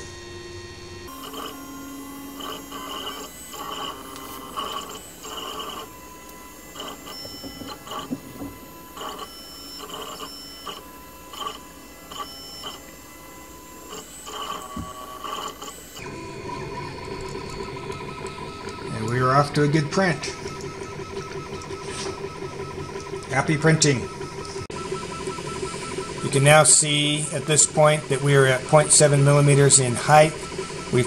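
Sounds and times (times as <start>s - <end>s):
fan whirring: 0.0s - 31.0s
stepper motors whining: 0.0s - 31.0s.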